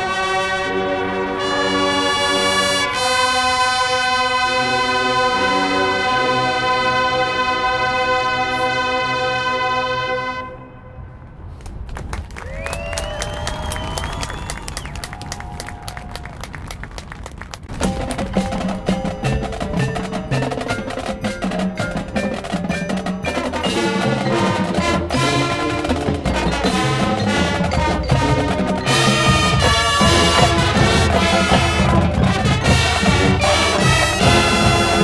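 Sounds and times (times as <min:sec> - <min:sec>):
brass section playing: 0:00.0 - 0:11.4, 0:17.7 - 0:35.0
drums: 0:13.2 - 0:35.0
mallet percussion: 0:17.7 - 0:35.0.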